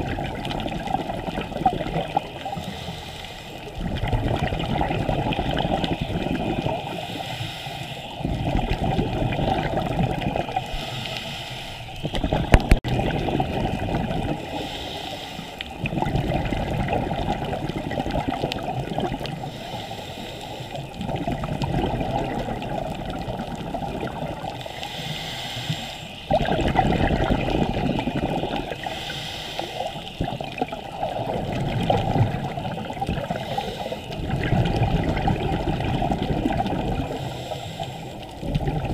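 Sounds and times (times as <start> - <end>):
underwater regulator bubbles: 0.0 - 38.9.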